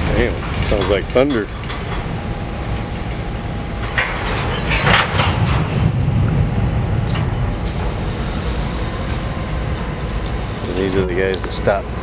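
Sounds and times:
wheel and rail clatter: 0.0s - 9.2s
freight train rumbling: 0.0s - 12.0s.

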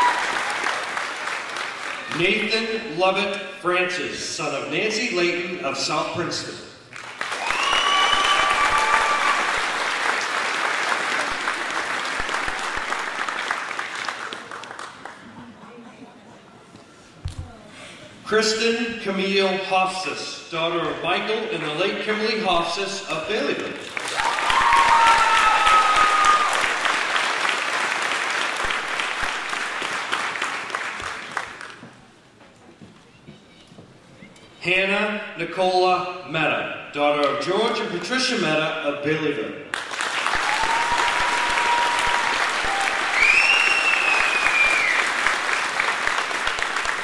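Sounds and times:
audience applause: 0.0s - 2.5s, 7.0s - 15.6s, 23.6s - 31.9s, 39.7s - 47.0s.

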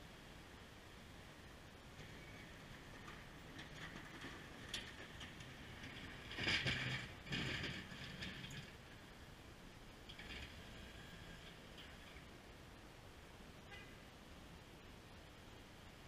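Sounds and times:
plow blade scraping snow on pavement: 2.0s - 8.8s.

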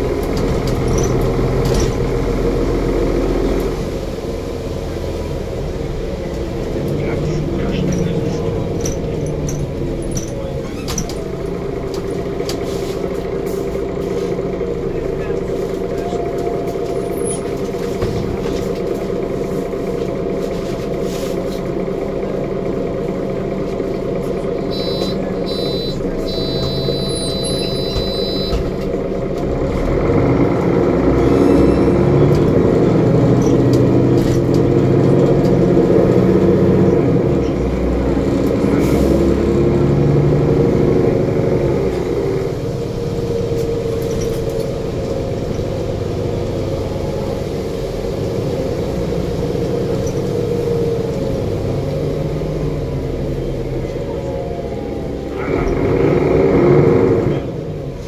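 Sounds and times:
bus diesel engine: 0.0s - 58.0s
high electronic beeps: 24.7s - 28.6s.

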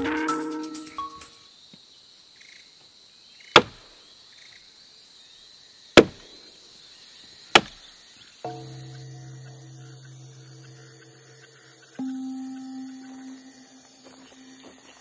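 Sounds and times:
sharp chopping strikes: 3.6s - 3.8s, 6.0s - 6.2s, 7.6s - 7.8s
low hum with overtones: 8.5s - 14.8s
faint high whine: 8.5s - 15.0s.

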